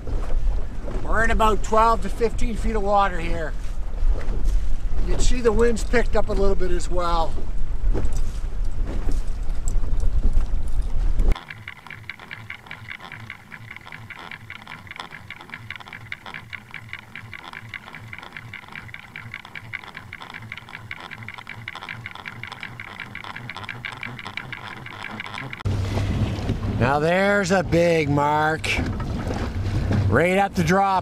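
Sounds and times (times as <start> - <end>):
fast underwater ticking and rattling: 11.3 - 25.7
low underwater pulsing: 11.3 - 26.8.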